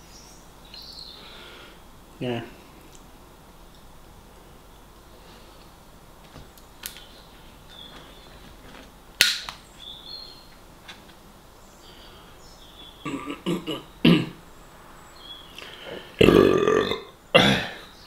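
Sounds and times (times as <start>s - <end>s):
faint birds chirping: 0.0s - 18.0s
man coughing: 13.0s - 14.4s, 17.4s - 17.9s.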